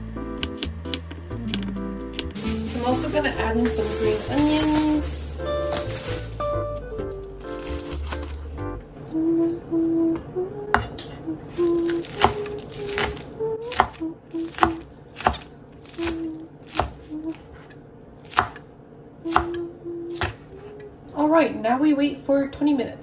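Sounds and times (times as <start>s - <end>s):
woman humming: 1.2s - 5.9s, 9.0s - 15.0s, 15.8s - 17.6s, 19.2s - 21.1s
knife chopping on cutting board: 11.7s - 18.6s.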